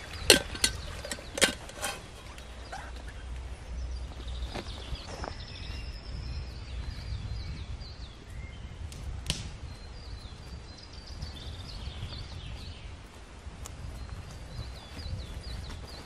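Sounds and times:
small birds chirping: 0.0s - 16.0s
footsteps on moss: 4.2s - 6.0s, 10.3s - 16.0s.

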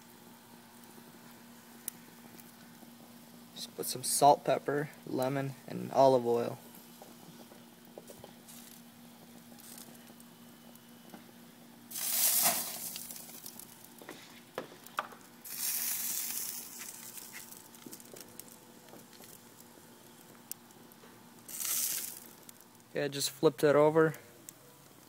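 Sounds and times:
faint steady hum: 0.0s - 25.0s
fish sizzling on a grill: 0.0s - 25.0s
small crackles: 0.7s - 3.7s, 6.5s - 23.0s.

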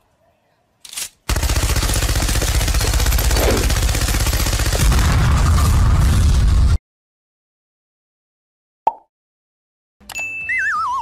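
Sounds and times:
machine gun firing: 1.3s - 6.4s.

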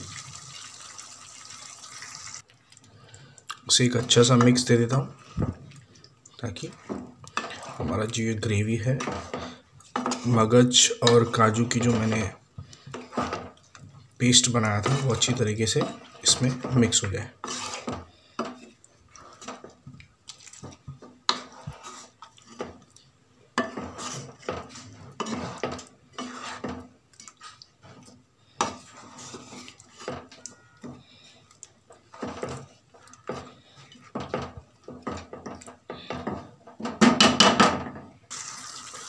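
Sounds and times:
spatula scraping frying pan: 6.6s - 19.8s, 20.5s - 22.9s, 23.5s - 37.2s
spatula knocking on pan: 34.2s - 38.0s.

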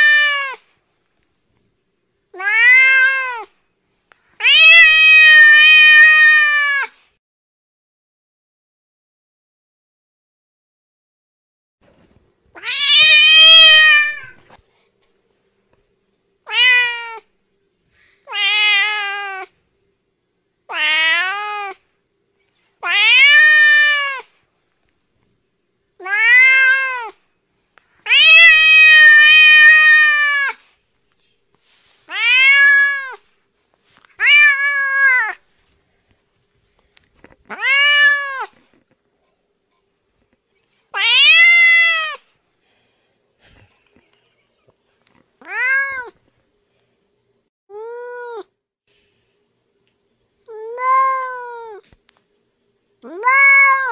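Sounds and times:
cat meowing: 0.0s - 0.6s, 2.4s - 3.5s, 4.4s - 7.0s, 12.6s - 14.4s, 16.5s - 17.3s, 18.3s - 19.5s, 20.7s - 21.8s, 22.8s - 24.3s, 26.0s - 27.2s, 28.1s - 30.6s, 32.1s - 33.2s, 34.2s - 35.4s, 37.5s - 38.6s, 41.0s - 42.2s, 45.4s - 46.2s, 50.5s - 51.8s, 53.0s - 53.9s.

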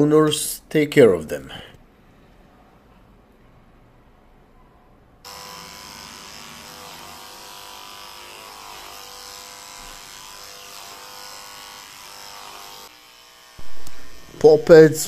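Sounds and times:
electric clipper humming: 5.2s - 14.8s.

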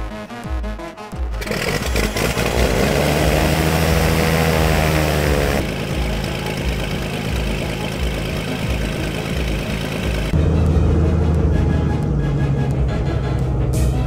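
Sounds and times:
propeller plane engine idling: 4.4s - 13.8s.

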